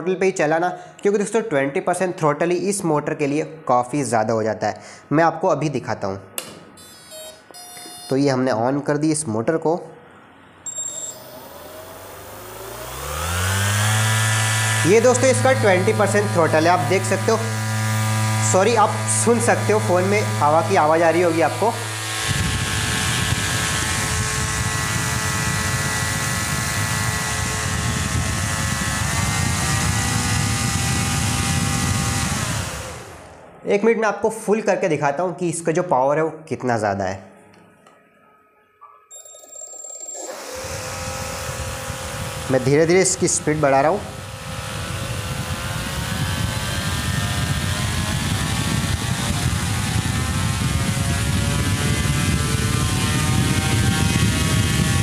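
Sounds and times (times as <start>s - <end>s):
fan motor whine: 6.4s - 8.6s, 10.0s - 33.8s, 39.8s - 55.0s
wind rumbling on microphone: 22.2s - 33.2s, 40.6s - 55.0s.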